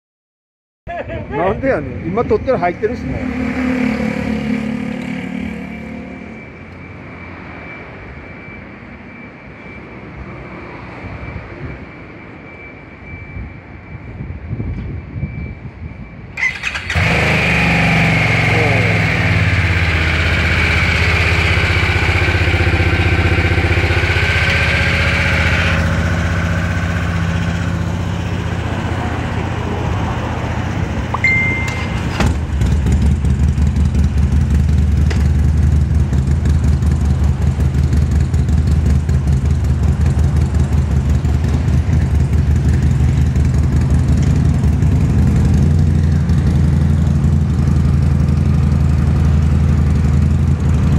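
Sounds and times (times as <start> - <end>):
motorcycle engine starting and idling: 16.4 - 50.9
motorcycle engine deep pulsing idle: 18.0 - 28.7, 32.6 - 50.9.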